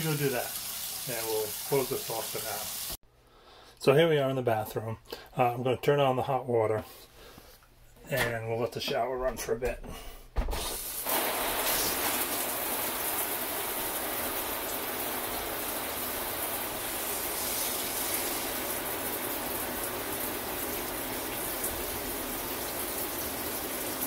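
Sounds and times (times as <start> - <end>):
shower head spraying water: 0.0 - 3.0, 10.6 - 24.0.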